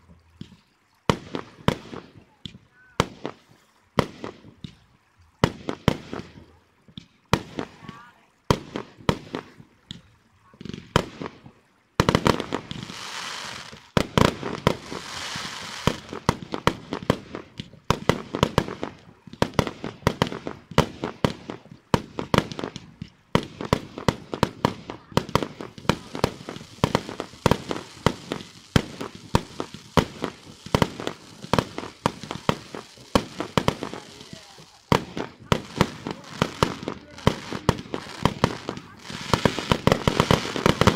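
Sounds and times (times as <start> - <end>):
crackling sparks: 12.1 - 40.9
fireworks shells bursting: 22.0 - 40.9.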